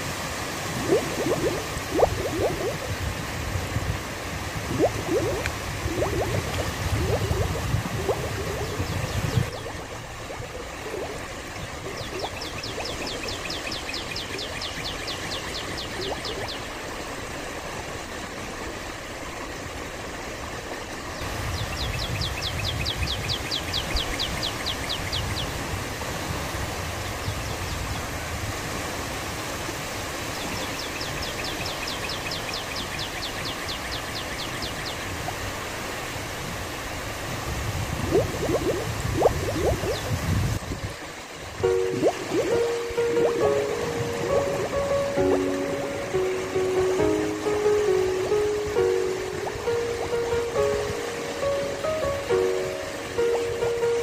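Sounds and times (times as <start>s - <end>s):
small waves lapping at shore: 0.0s - 54.0s.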